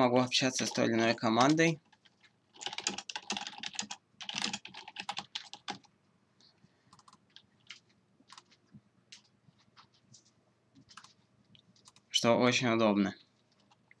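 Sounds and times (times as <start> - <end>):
typing on computer keyboard: 0.6 - 5.9, 6.9 - 8.6, 10.9 - 11.2, 11.8 - 12.1.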